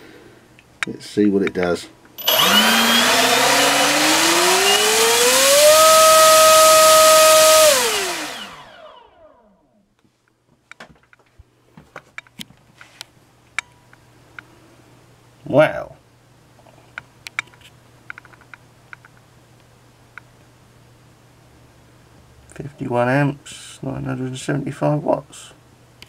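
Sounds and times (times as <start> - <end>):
electric motor whine: 2.2 - 9.6.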